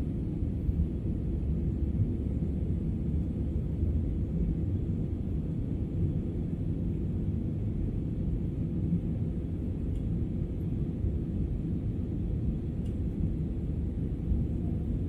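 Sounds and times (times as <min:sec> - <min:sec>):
airliner cabin engine rumble: 0:00.0 - 0:15.0.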